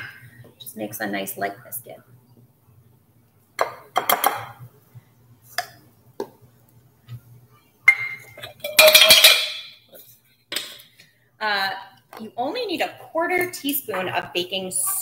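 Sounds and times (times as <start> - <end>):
metal measuring cups clattering: 7.9 - 9.8.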